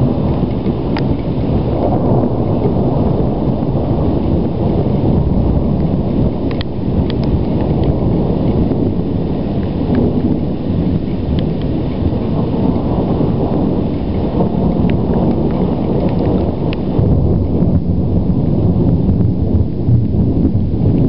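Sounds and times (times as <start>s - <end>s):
low rumbling thunder: 0.0s - 21.0s
light ticks: 6.5s - 8.0s, 14.8s - 16.8s.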